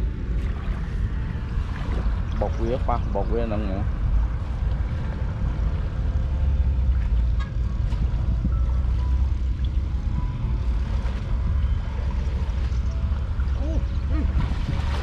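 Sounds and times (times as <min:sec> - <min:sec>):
wind rumble on microphone: 0:00.0 - 0:15.0
water splashing and dripping: 0:06.8 - 0:15.0.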